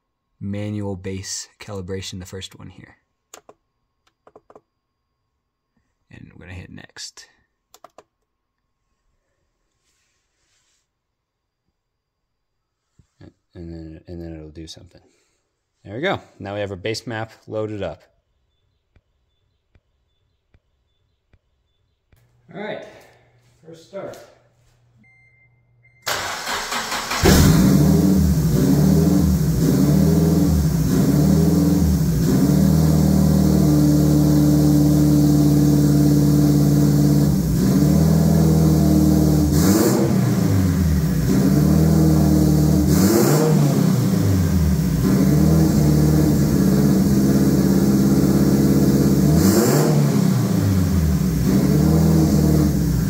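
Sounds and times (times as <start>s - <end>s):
car engine cranking and running: 26.1s - 53.0s.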